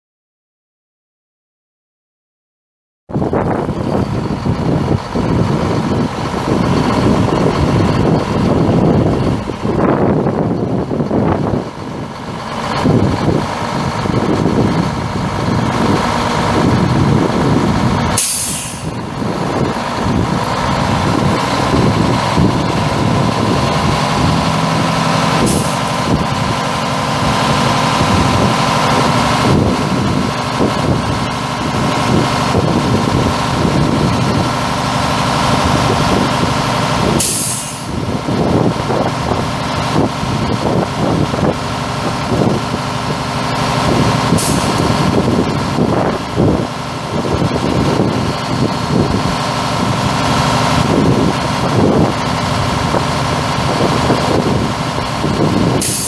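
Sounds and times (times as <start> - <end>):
truck diesel engine running: 3.1 - 56.0
air hissing: 18.1 - 19.0, 25.4 - 26.0, 37.1 - 38.0, 44.3 - 44.9, 55.8 - 56.0.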